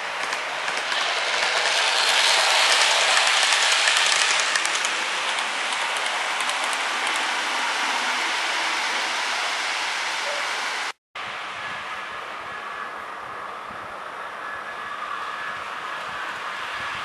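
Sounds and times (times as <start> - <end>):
wheels clicking over rail joints: 0.0 - 8.3
model train wheels rushing: 0.0 - 10.9.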